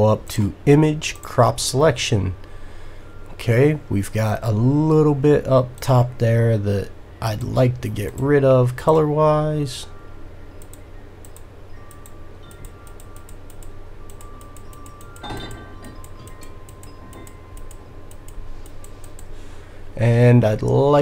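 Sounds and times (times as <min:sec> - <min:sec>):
steady low hum: 0:00.0 - 0:21.0
keyboard and mouse clicking: 0:10.6 - 0:15.2, 0:16.0 - 0:19.3.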